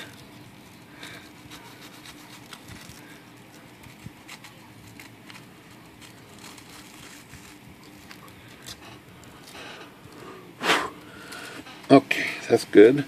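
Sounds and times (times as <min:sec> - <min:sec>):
sanding stick scratching plastic: 0:01.2 - 0:03.0.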